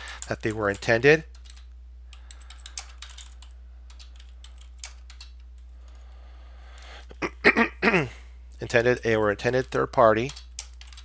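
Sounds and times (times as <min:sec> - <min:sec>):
keyboard typing: 0:00.0 - 0:06.0, 0:08.8 - 0:11.0
low electrical hum: 0:00.0 - 0:11.0.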